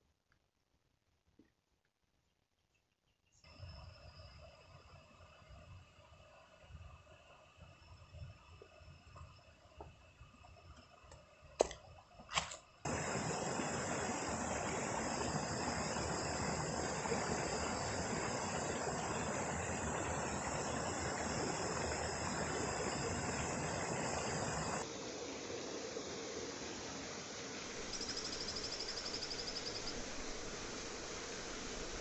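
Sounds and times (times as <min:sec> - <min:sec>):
faint insect calls: 0:02.2 - 0:32.0
stream water running over rocks: 0:10.4 - 0:24.9.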